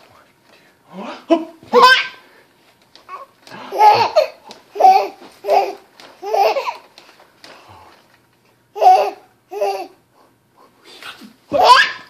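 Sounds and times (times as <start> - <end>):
baby laughing: 1.3 - 2.2, 3.1 - 6.9, 8.8 - 10.0, 11.5 - 12.0
baby squealing: 1.8 - 2.2, 11.5 - 12.0.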